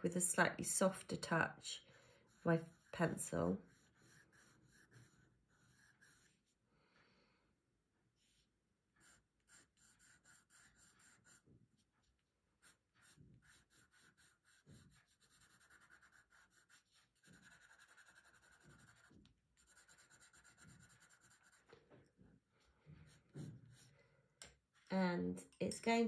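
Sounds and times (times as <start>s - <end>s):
pencil scratching on paper: 2.2s - 6.6s, 8.2s - 11.9s, 12.5s - 21.8s, 22.8s - 24.0s.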